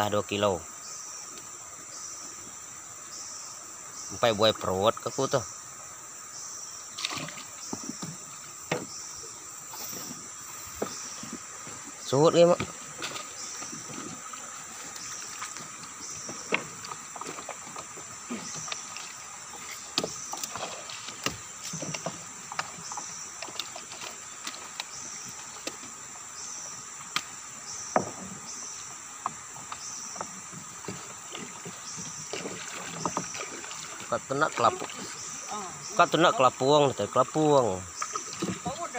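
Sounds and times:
high insect drone: 0.0s - 38.9s
water splashing: 6.9s - 38.9s
knocks on wooden hull: 7.1s - 9.0s, 12.4s - 14.2s, 27.9s - 28.4s.

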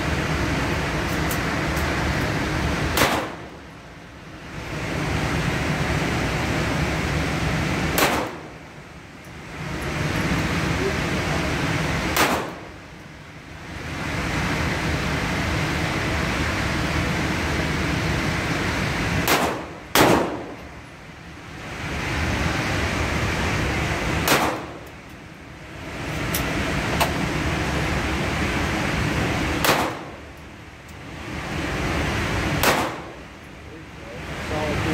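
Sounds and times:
gunshots indoors: 2.7s - 3.6s, 7.8s - 8.6s, 12.0s - 12.7s, 19.1s - 20.7s, 24.1s - 24.9s, 29.5s - 30.3s, 32.5s - 33.2s.

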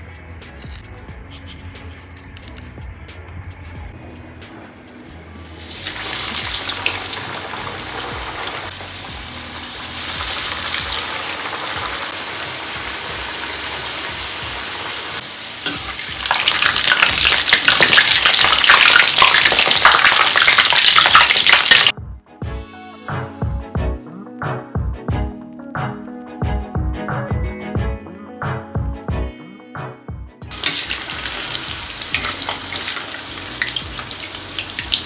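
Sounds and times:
oil sizzling deep-frying: 4.9s - 21.9s, 30.5s - 35.0s.

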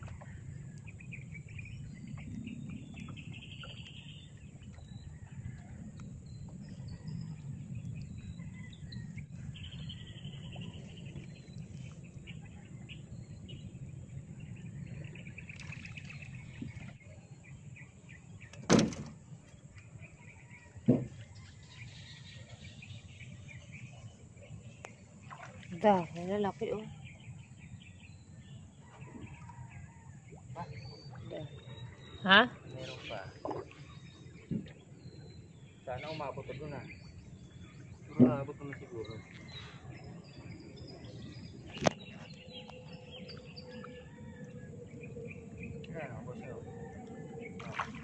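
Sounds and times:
birds chirping: 0.1s - 48.0s.

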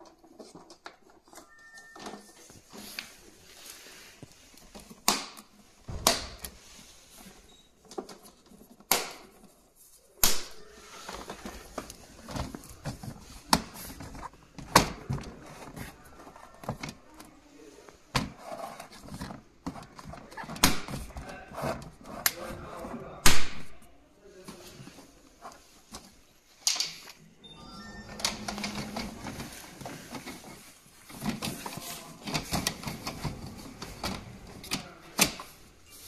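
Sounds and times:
plastic handling noise: 0.0s - 27.2s, 28.0s - 36.0s
plastic panels snapping together: 8.8s - 9.3s.

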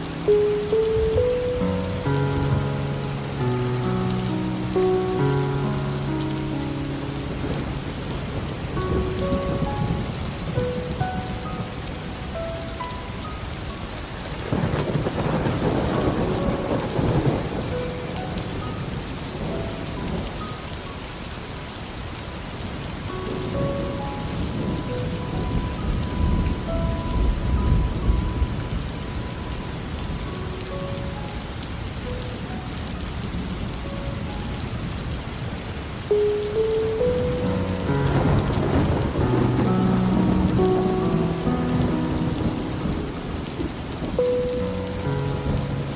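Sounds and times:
thunder rumbling: 0.0s - 12.6s, 14.2s - 20.5s, 23.0s - 31.3s, 36.1s - 45.9s
soft musical notes: 0.0s - 21.8s, 22.6s - 45.9s
steady rain falling: 0.0s - 45.9s.

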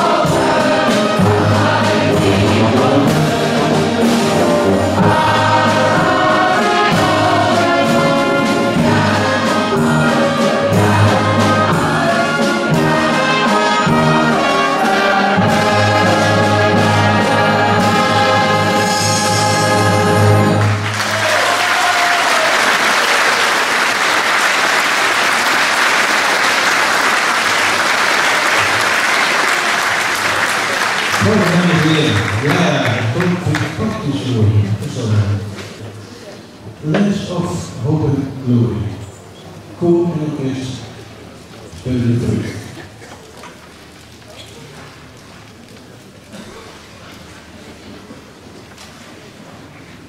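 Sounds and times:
orchestra and choir held chord: 0.0s - 21.5s
audience applause: 20.6s - 33.8s.

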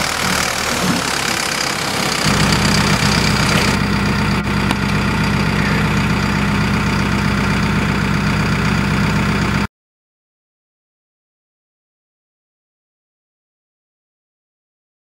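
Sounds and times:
mixed working noise: 0.0s - 9.7s
tractor engine hum: 0.0s - 9.7s.

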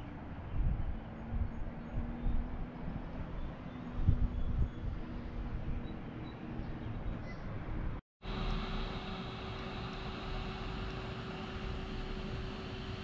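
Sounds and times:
wind buffeting microphone: 0.0s - 8.0s
faint steady hum: 8.2s - 13.0s.

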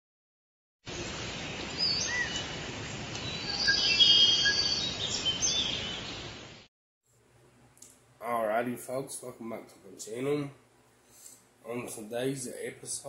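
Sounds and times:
birds chirping and whistling: 1.6s - 6.4s
steady background hiss: 5.8s - 13.0s.

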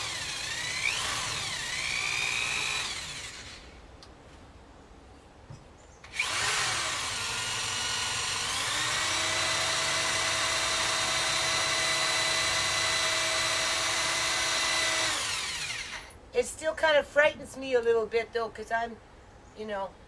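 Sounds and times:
electric drill motor whine: 0.0s - 3.8s, 6.1s - 16.1s.

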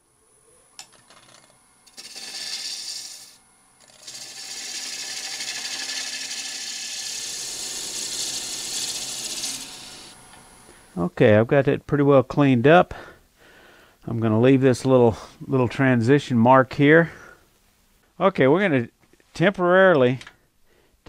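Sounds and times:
faint high whine: 0.0s - 4.1s
gouge scraping wood on a lathe: 1.9s - 10.2s.

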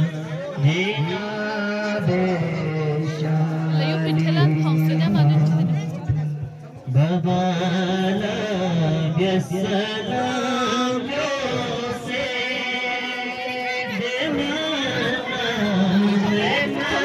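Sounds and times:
man chanting: 0.0s - 6.1s, 6.9s - 17.0s.

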